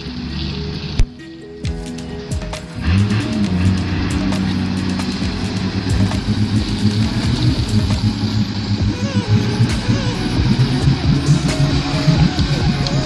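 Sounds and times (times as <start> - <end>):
background music: 0.0 - 13.0
heavy truck engine running hard: 2.8 - 13.0.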